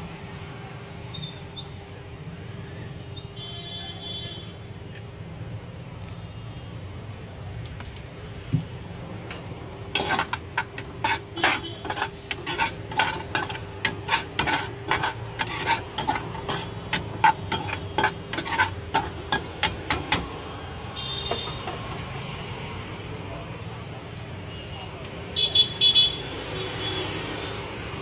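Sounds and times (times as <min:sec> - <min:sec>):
spoon scraping metal frying pan: 0:09.9 - 0:22.0.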